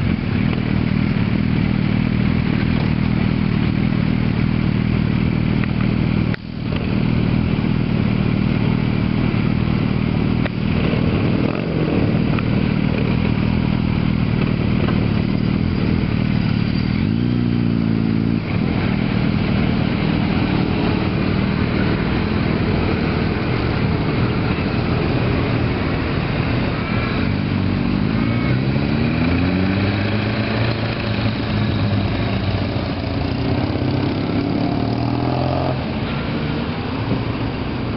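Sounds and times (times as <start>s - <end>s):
motorcycles accelerating: 0.0s - 37.9s.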